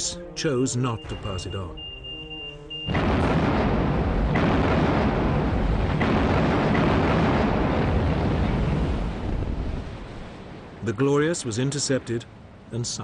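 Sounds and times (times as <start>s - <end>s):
naval gunfire and explosions: 2.8s - 12.0s
sharp cracks: 2.9s - 9.9s.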